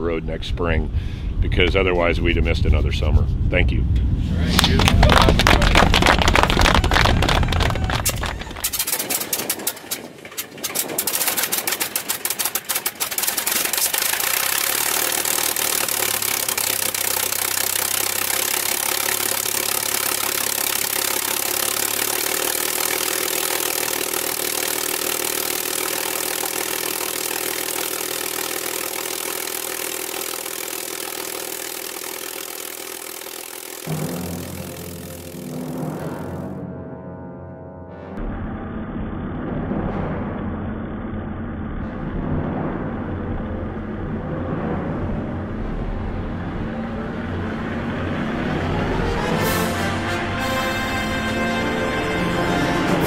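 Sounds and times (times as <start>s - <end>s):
aircraft engine starting: 3.8s - 36.6s.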